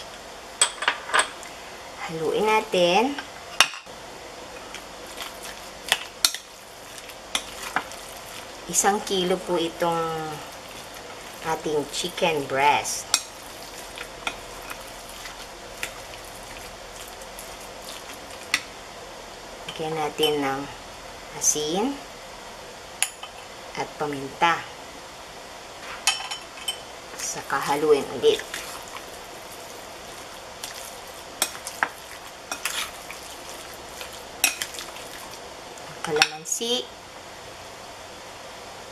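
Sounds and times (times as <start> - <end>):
wet squishing of mixing meat: 4.6 - 18.8, 27.1 - 35.9.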